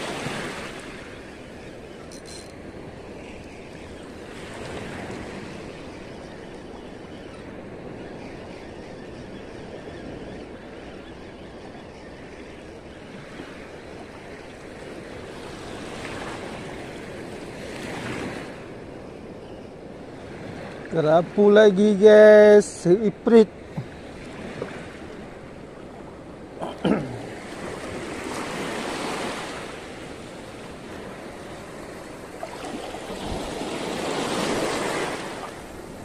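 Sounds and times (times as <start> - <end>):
small waves washing on shore: 0.0 - 6.8, 13.0 - 19.1, 19.8 - 36.0
wind: 0.0 - 36.0.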